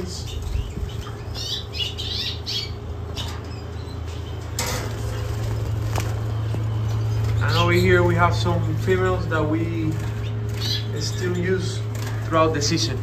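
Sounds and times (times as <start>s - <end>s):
canaries chirping: 0.0s - 13.0s
steady low hum: 0.0s - 13.0s.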